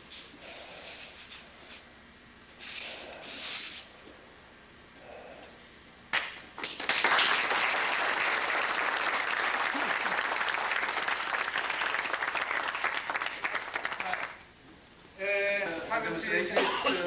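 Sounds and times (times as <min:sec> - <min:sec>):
people applauding: 0:06.2 - 0:14.5.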